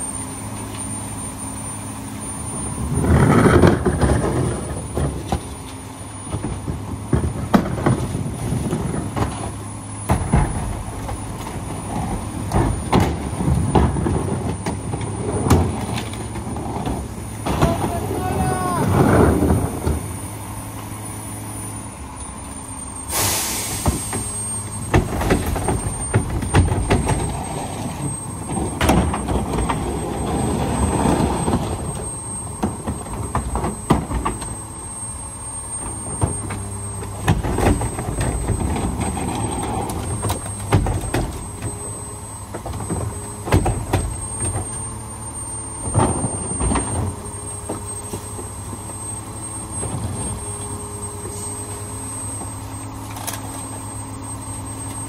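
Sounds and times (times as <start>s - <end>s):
carts and trash banging hopper: 0.0s - 55.0s
garbage truck idling: 0.0s - 55.0s
short hiss: 23.1s - 24.1s.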